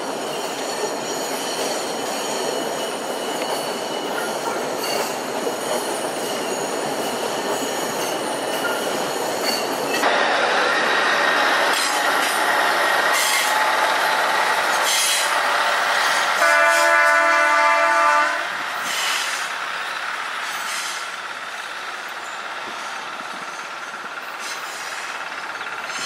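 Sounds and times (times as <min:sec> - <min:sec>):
train running noise: 0:00.0 - 0:26.0
train horn: 0:15.1 - 0:18.6.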